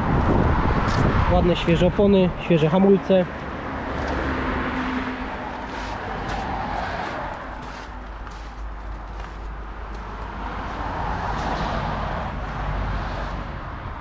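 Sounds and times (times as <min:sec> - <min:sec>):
cars passing on road: 0:00.0 - 0:14.0
footsteps on gravel: 0:03.3 - 0:13.4.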